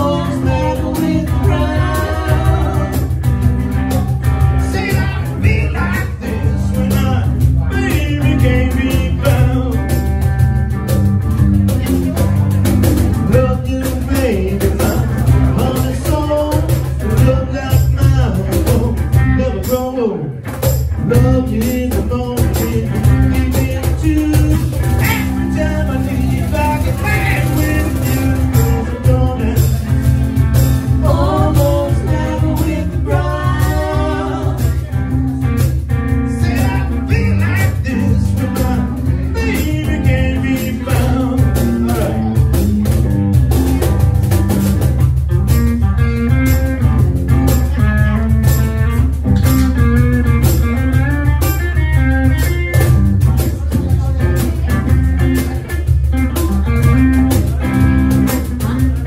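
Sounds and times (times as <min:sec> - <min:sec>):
person singing: 0:00.0 - 0:10.2, 0:21.0 - 0:30.3, 0:30.9 - 0:42.5
cajon beat: 0:00.0 - 0:59.0
electric guitar: 0:00.0 - 0:59.0.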